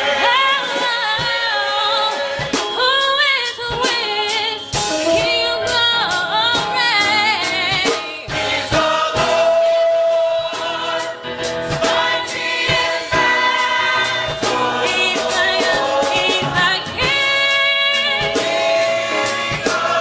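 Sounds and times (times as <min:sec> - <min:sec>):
gospel choir singing: 0:00.0 - 0:20.0
percussive beat: 0:02.4 - 0:09.6.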